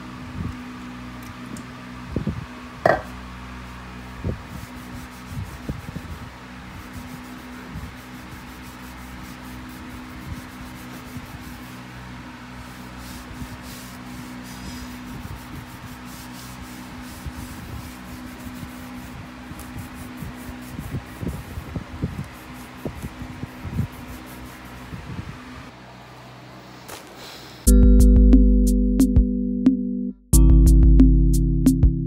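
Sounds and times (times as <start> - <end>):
cloth rubbing on floor: 12.6 - 21.7, 22.3 - 25.0
background music: 27.7 - 32.0.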